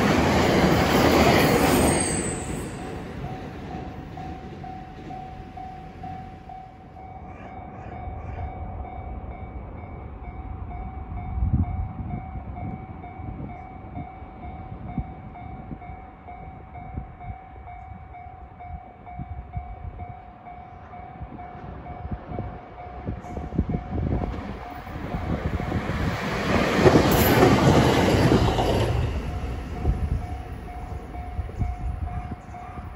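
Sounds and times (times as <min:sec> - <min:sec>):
train passing rumble: 0:00.0 - 0:32.9.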